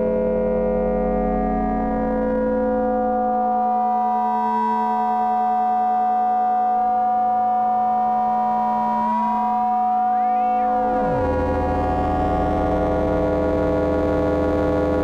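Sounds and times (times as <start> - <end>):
synthesizer drone: 9.7 - 15.0
tone gliding upward: 10.0 - 14.3.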